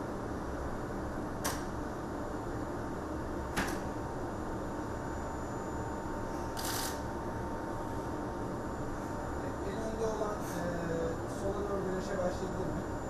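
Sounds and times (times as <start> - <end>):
sharp click: 1.4 - 1.7.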